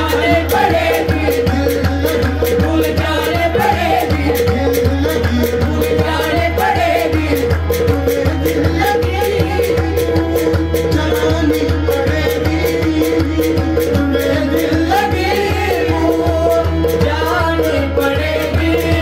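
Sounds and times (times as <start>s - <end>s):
man singing: 0.0s - 19.0s
percussion beat: 0.0s - 19.0s.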